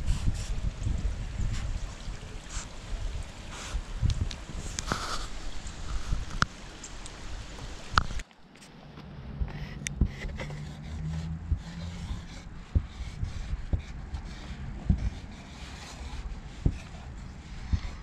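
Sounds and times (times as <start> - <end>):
low rumble: 8.6 - 18.0
marker nib scraping: 9.5 - 17.0.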